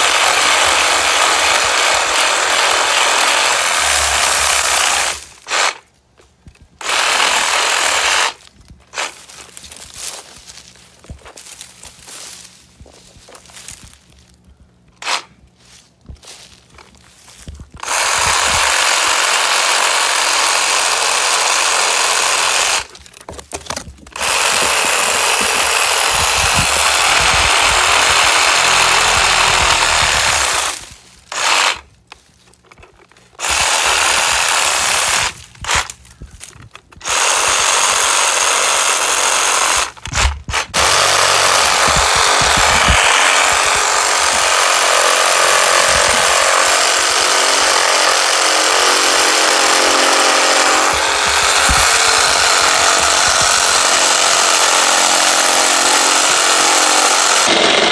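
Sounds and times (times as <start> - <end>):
reciprocating saw cutting limbs: 0.0 - 5.9, 6.5 - 10.2, 17.7 - 23.1, 24.1 - 32.0, 33.3 - 36.1, 37.0 - 57.9.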